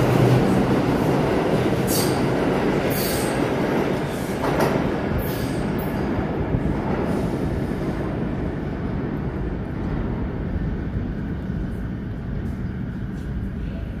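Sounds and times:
subway train rumbling: 0:00.0 - 0:14.0.

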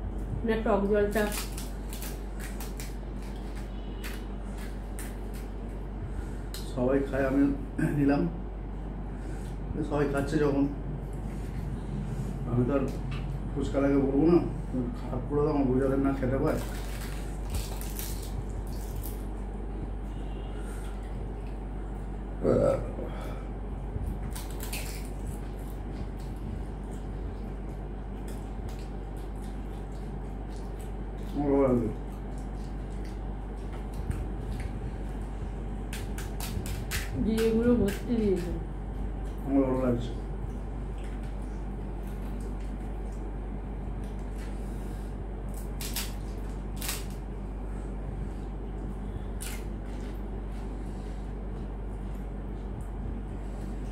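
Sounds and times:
steady low hum: 0:00.0 - 0:53.9
crunching and chewing food: 0:00.2 - 0:07.2, 0:15.8 - 0:53.9
crisp shells cracking and crunching: 0:01.1 - 0:05.6, 0:16.4 - 0:19.3, 0:24.2 - 0:26.4, 0:35.9 - 0:38.5, 0:45.5 - 0:47.3.

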